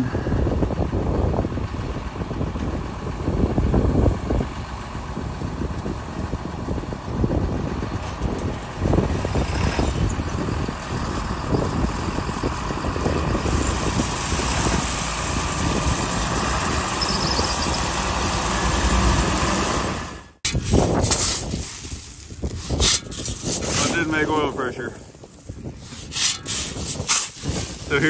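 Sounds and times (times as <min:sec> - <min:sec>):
diesel engine running: 0:00.0 - 0:26.8
shovel scraping through corn: 0:20.5 - 0:28.0.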